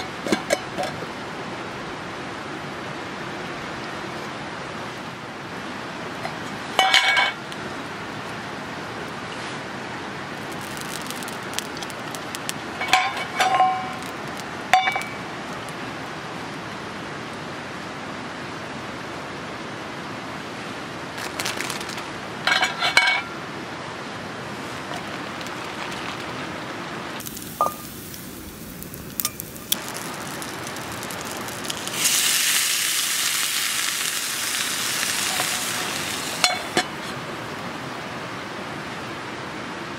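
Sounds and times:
metal frying pans clinking: 0.0s - 1.0s, 6.2s - 7.4s, 12.8s - 14.1s, 14.7s - 15.2s, 22.4s - 23.4s, 35.2s - 37.1s
steady background hiss: 0.0s - 39.9s.

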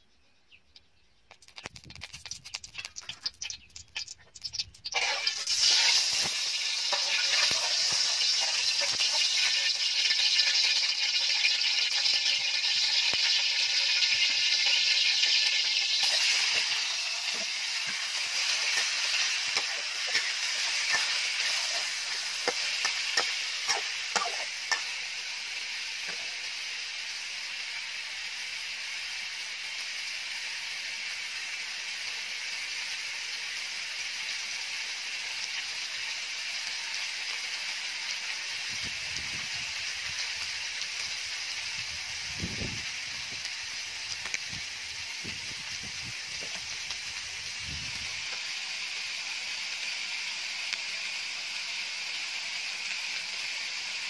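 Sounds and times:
chicken sizzling in oil: 1.5s - 54.0s
metal spatula scraping wok: 4.0s - 10.8s, 13.8s - 26.5s.

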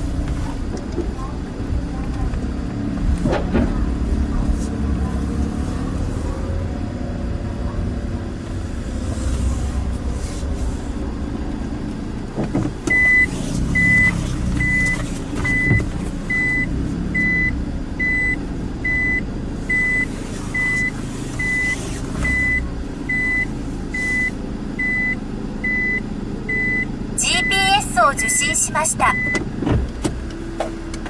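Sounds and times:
high electronic warning beep: 12.9s - 29.4s.

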